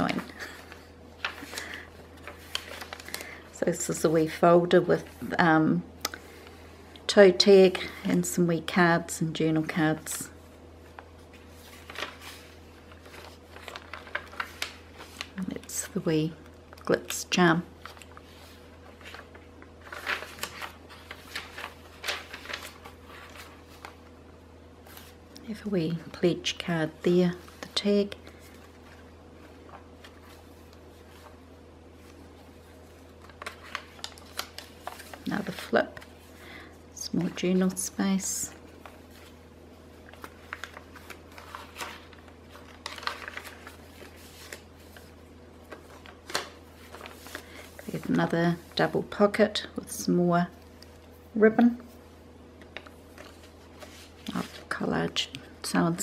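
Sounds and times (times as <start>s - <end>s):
paper pages rustling: 0.0s - 3.5s, 10.0s - 16.0s, 17.7s - 24.2s, 24.8s - 25.3s, 27.2s - 36.4s, 37.2s - 49.5s, 50.5s - 55.1s.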